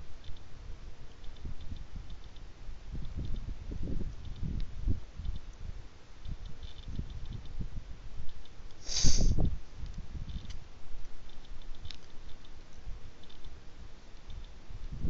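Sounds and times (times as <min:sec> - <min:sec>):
wind buffeting microphone: 0:00.6 - 0:08.2, 0:09.1 - 0:10.7, 0:14.3 - 0:15.0.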